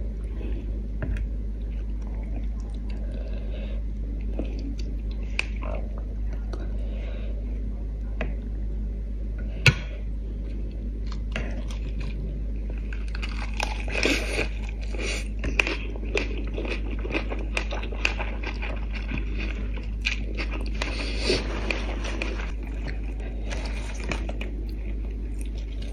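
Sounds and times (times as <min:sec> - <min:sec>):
low steady hum: 0:00.0 - 0:25.9
wet chewing and crunching: 0:10.5 - 0:25.9.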